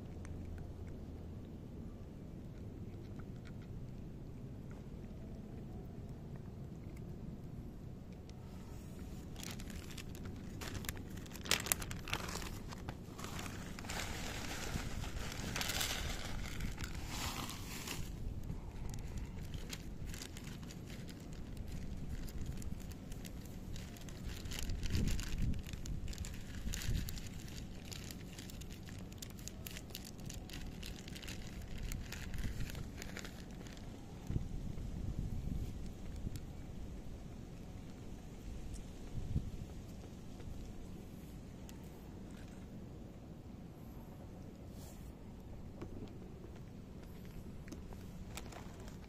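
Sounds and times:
cats crunching dry kibble: 0.0 - 49.0
wind rumble on microphone: 8.5 - 41.1
plastic bag crinkling: 9.0 - 34.0, 47.7 - 49.0.

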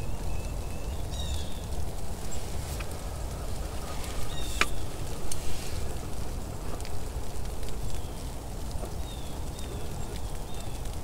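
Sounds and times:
low steady rumble: 0.0 - 11.0
distant blue jays calling: 3.8 - 5.0.

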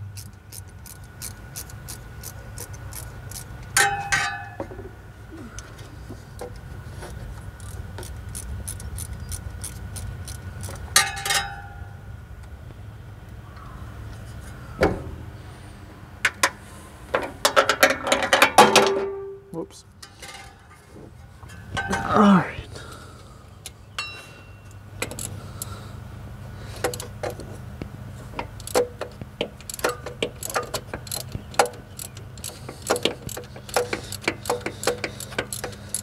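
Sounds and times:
ratchet clicking: 0.2 - 3.8, 7.6 - 10.8, 25.0 - 25.8, 28.4 - 36.0.

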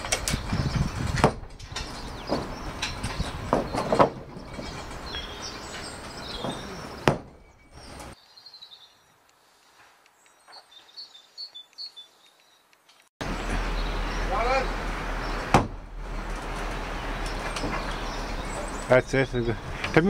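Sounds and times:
small birds chirping: 0.0 - 15.5, 16.2 - 20.0
knocks on scaffold: 1.1 - 1.5, 2.3 - 4.7, 6.4 - 7.4, 15.5 - 15.8.

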